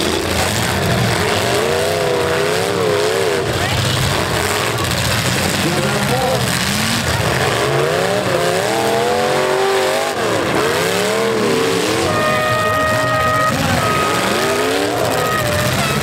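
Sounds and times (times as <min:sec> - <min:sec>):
truck engines revving: 0:00.0 - 0:16.0
steady horn note: 0:11.9 - 0:16.0.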